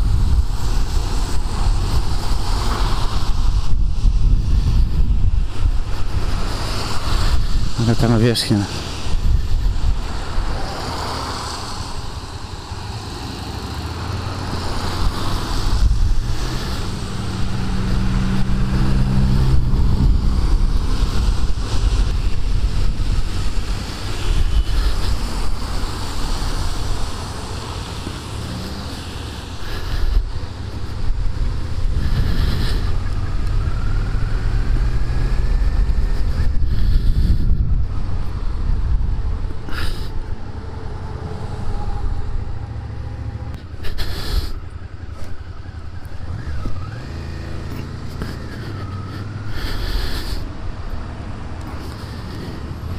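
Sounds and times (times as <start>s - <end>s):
wind noise on microphone: 0.0s - 8.1s, 8.8s - 13.0s, 13.6s - 40.6s
tyres hissing on wet road: 0.0s - 52.9s.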